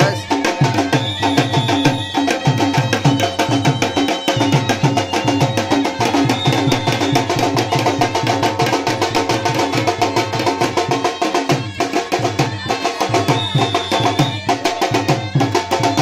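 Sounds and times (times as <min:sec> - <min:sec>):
drum strokes: 0:00.0 - 0:16.0.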